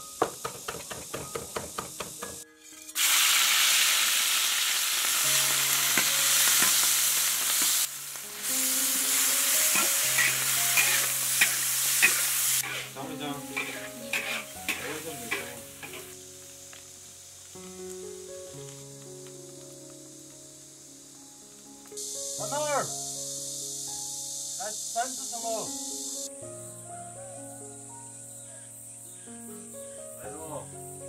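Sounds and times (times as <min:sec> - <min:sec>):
food sizzling in hot oil: 0:00.0 - 0:26.9
soft background music: 0:01.2 - 0:31.0
spatula scraping wok: 0:05.4 - 0:07.9, 0:09.1 - 0:16.2.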